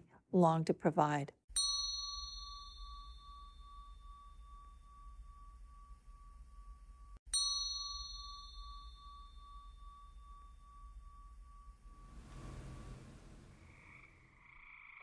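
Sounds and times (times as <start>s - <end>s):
soft rushing noise: 11.8s - 14.4s.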